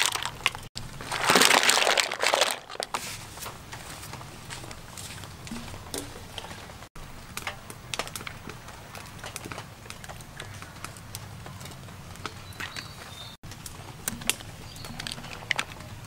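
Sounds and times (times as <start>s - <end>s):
mussel shells clicking: 0.0s - 0.7s.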